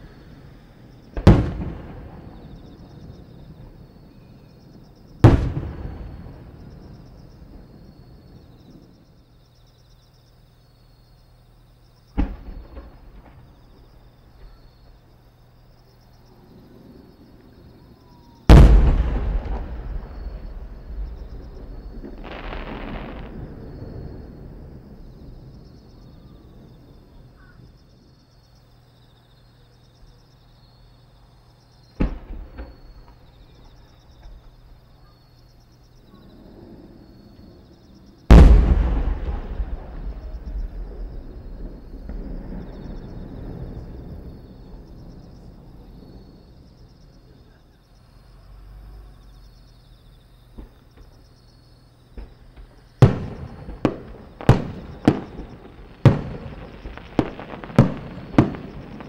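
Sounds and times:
firework shells booming: 0:00.0 - 0:08.9, 0:12.1 - 0:15.0, 0:18.1 - 0:27.7, 0:32.0 - 0:34.6, 0:38.3 - 0:46.5, 0:52.1 - 0:59.0
insects chirring: 0:00.0 - 0:59.0.

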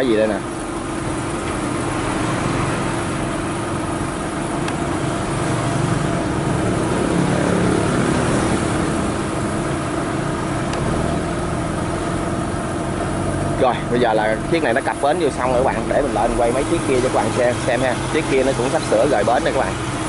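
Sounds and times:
barge diesel engine running: 0:00.0 - 0:20.0.

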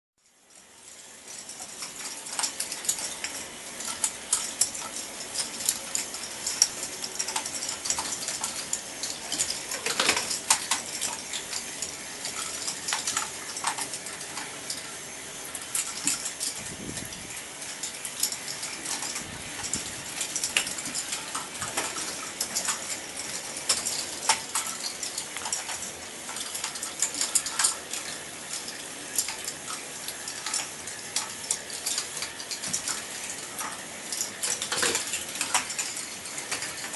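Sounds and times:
mechanical background hum: 0:00.2 - 0:36.9
plastic balls clattering on tracks: 0:01.2 - 0:36.9.

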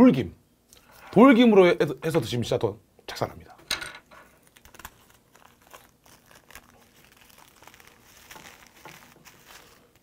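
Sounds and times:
dry seaweed sheet crackling: 0:04.3 - 0:10.0.

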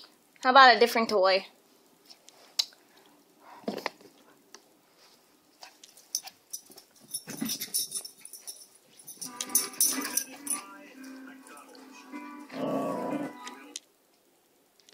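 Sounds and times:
dog making low vocal noises: 0:12.5 - 0:13.4.

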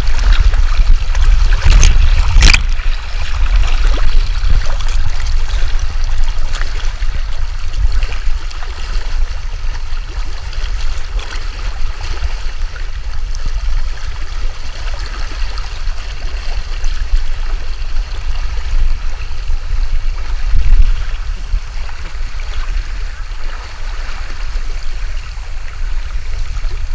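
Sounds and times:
stream water rushing: 0:00.0 - 0:26.9.

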